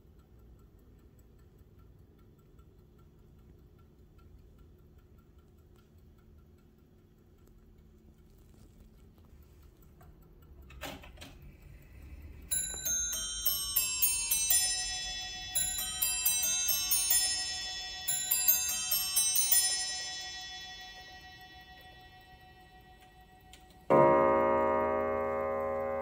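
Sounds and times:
clock mechanism clicks: 0.0s - 26.0s
clock bell chime: 12.5s - 26.0s.

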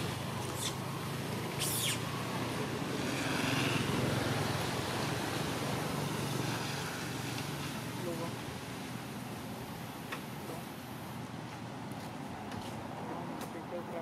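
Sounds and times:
distant traffic hum: 0.0s - 14.0s
high-pitched squeaks: 1.6s - 2.0s.

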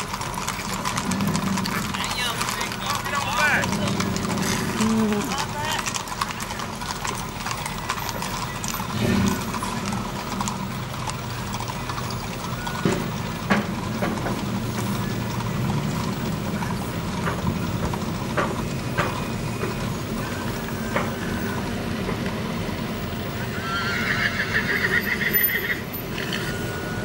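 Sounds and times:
horse whinnying: 0.0s - 13.2s, 23.3s - 27.0s
trailers knocking: 0.0s - 23.4s
trucks driving past: 0.0s - 27.0s.

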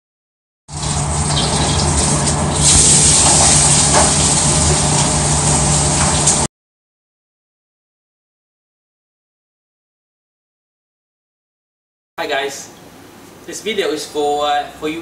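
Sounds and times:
steady low hum: 0.7s - 6.5s
wok sizzling: 0.7s - 6.5s.

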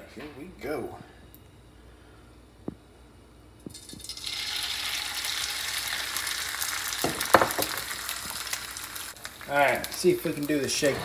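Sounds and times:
egg sizzling in hot fat: 3.7s - 11.0s.

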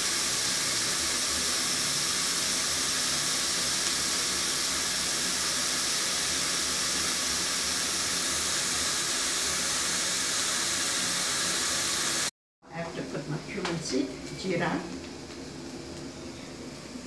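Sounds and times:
onions sizzling in hot oil: 0.0s - 12.3s.

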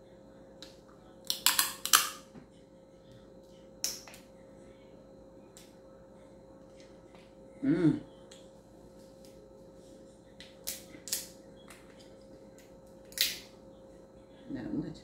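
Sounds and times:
crab shell snapping and cracking: 0.6s - 2.2s, 10.4s - 11.3s, 12.6s - 13.5s
person humming: 7.6s - 8.1s.

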